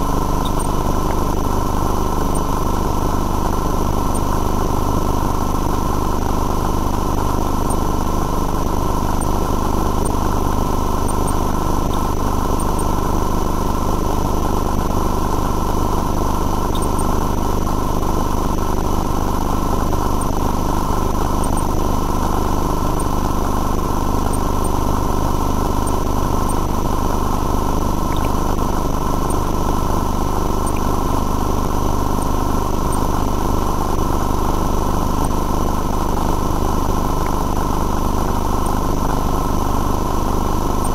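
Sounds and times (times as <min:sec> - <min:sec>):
constant whining tones: 0:00.0 - 0:40.9
engine-like drone: 0:00.0 - 0:40.9.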